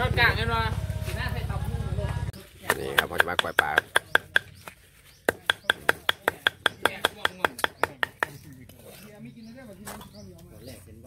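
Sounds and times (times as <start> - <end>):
knife chopping on wooden block: 2.7 - 4.5, 5.2 - 8.4.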